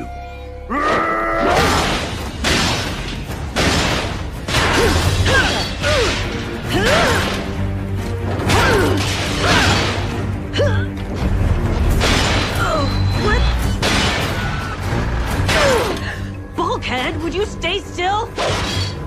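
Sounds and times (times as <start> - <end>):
dramatic music score: 0.0 - 19.0
heavy smashing and metallic hits: 1.6 - 7.0, 13.8 - 14.6.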